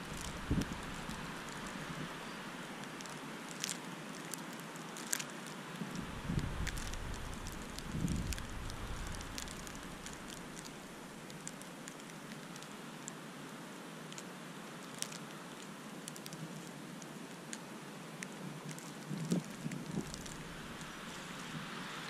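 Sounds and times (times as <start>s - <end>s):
gust buffeting the microphone: 0.0s - 2.2s, 5.8s - 11.0s, 19.1s - 22.0s
wind hissing: 0.0s - 2.8s, 5.8s - 11.2s, 19.3s - 22.0s
snow ticking on the camera: 0.0s - 12.6s, 18.5s - 22.0s.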